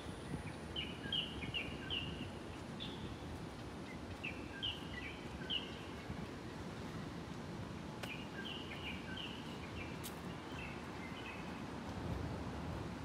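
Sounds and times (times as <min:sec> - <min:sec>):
songbird chirping: 0:00.0 - 0:06.3, 0:08.0 - 0:11.7.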